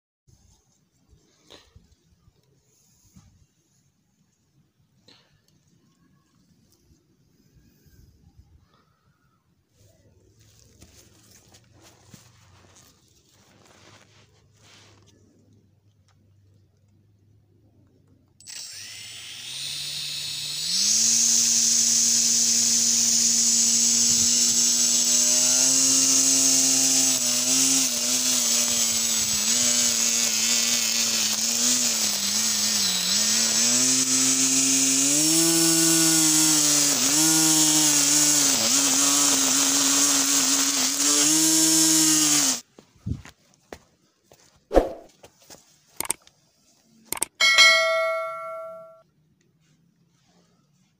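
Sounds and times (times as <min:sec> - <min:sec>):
electric motor whining: 0:18.4 - 0:42.6.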